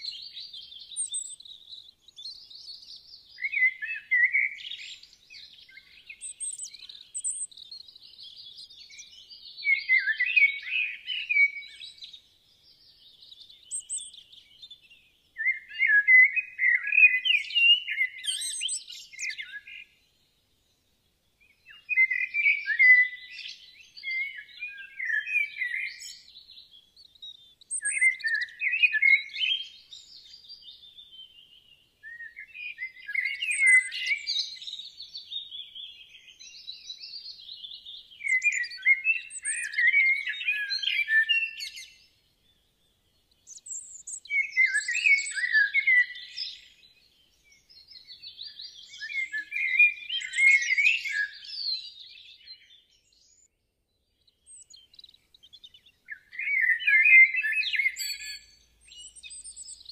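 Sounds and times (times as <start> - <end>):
birds chirping and twittering: 0.0 - 59.9.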